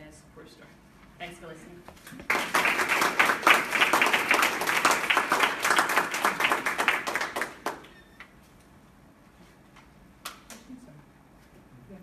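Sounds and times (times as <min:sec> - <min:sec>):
audience applauding: 0:02.2 - 0:07.9.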